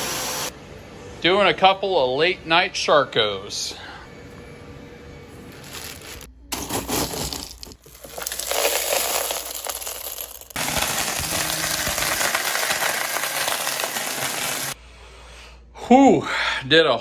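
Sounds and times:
plastic flakes rattling: 5.6 - 14.8
blender grinding plastic: 6.8 - 14.8.

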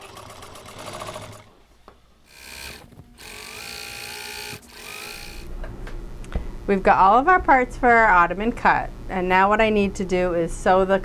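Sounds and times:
sewing machine stitching: 0.0 - 1.5, 2.3 - 5.5.

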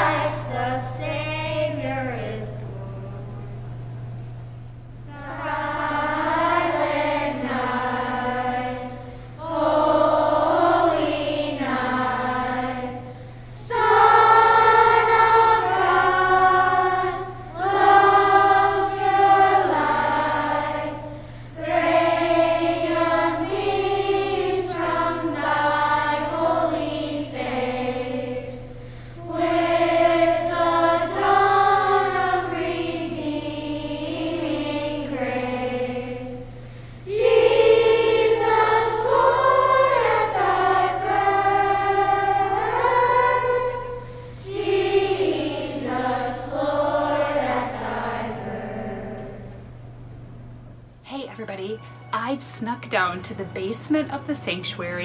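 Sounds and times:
choir singing: 0.0 - 3.4, 5.0 - 49.6
singers breathing: 9.0 - 9.4, 13.0 - 13.6, 21.1 - 21.6, 28.7 - 29.3, 36.5 - 37.1, 43.9 - 44.4.

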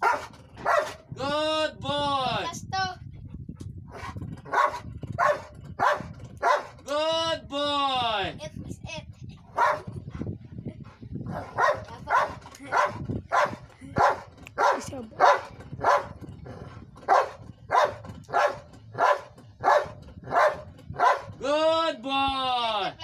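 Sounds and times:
dog barking: 0.0 - 1.0, 3.9 - 6.8, 9.5 - 9.9, 11.3 - 16.2, 17.1 - 21.4.

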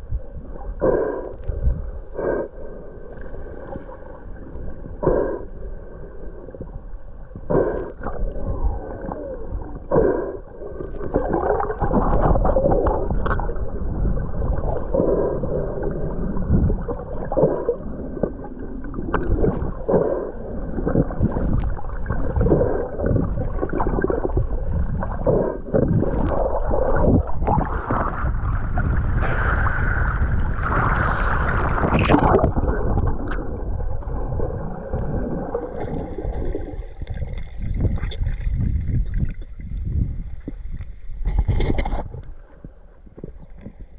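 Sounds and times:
underwater water and bubbles: 0.0 - 43.9
humpback whale song: 4.2 - 35.8.

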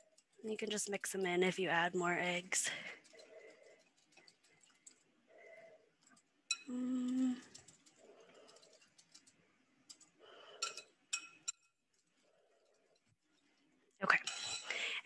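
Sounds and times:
metal clinking on glass: 10.6 - 11.7.

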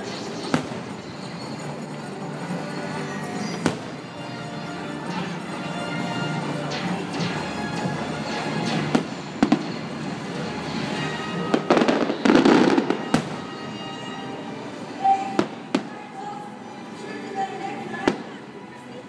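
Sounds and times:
firework bangs: 0.0 - 1.6, 3.4 - 4.0, 8.7 - 13.9
firework crackling: 0.0 - 4.4, 6.8 - 14.0
music: 0.0 - 19.0.

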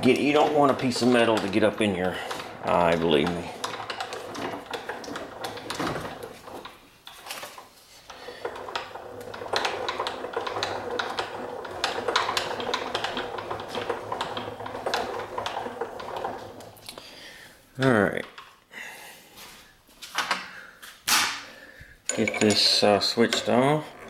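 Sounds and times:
mill spindle motor humming: 0.0 - 6.8, 8.1 - 17.2, 22.1 - 24.0.

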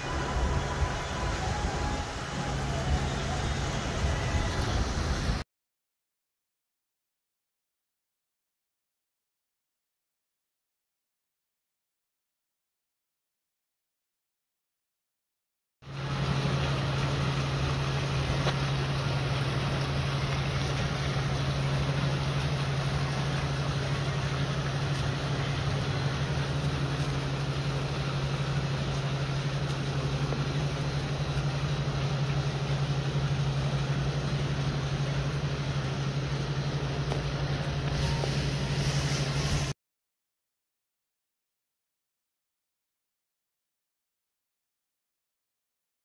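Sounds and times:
constant hiss: 0.0 - 5.4, 15.9 - 39.8
low machine hum: 0.0 - 5.4, 15.8 - 39.8.

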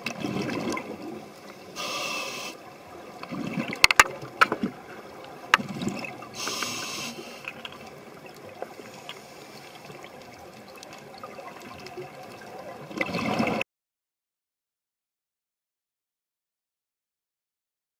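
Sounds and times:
gurgling rush of bubbles: 0.0 - 2.0, 2.6 - 13.6
underwater air bubbles hissing: 0.2 - 3.8, 4.7 - 10.3.

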